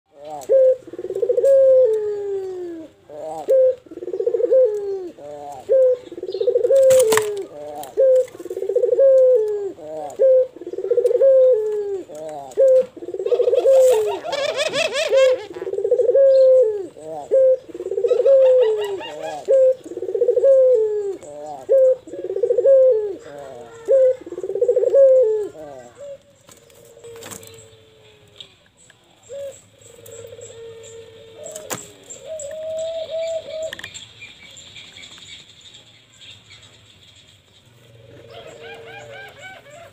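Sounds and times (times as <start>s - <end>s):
dove cooing: 0.1s - 28.6s, 29.2s - 34.0s, 37.8s - 39.9s.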